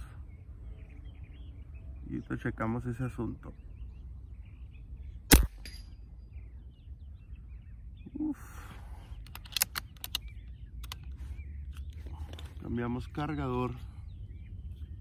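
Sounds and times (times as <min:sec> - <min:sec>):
air rifle shot: 0:05.3 - 0:05.8
rifle handling clicks: 0:09.2 - 0:12.5.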